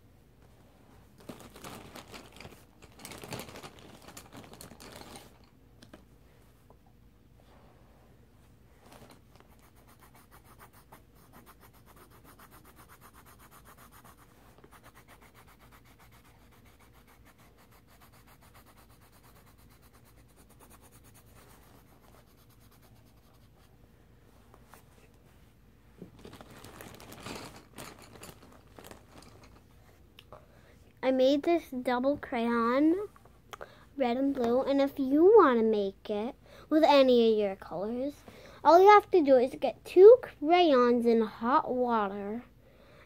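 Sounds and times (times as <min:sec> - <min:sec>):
scribbling on paper: 0:09.5 - 0:23.7
paper rustling: 0:26.0 - 0:29.6.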